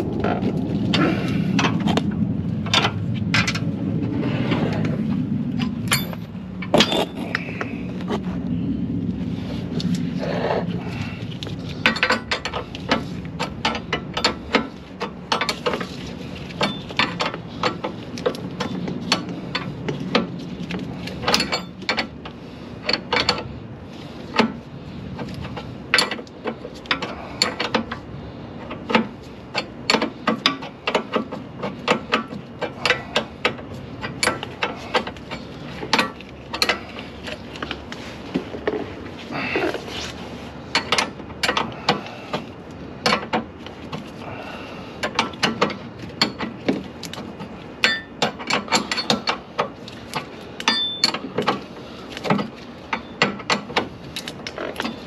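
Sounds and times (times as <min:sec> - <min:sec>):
low hum: 0:00.0 - 0:29.9
metal clinks: 0:05.6 - 0:07.5, 0:50.6 - 0:51.3.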